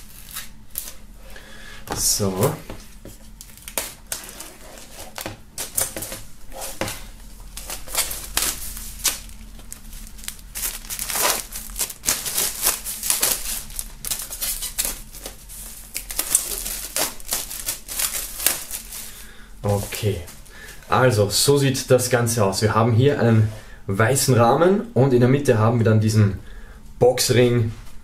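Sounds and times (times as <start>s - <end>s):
plastic film crinkling: 0.0s - 1.0s, 2.0s - 20.8s.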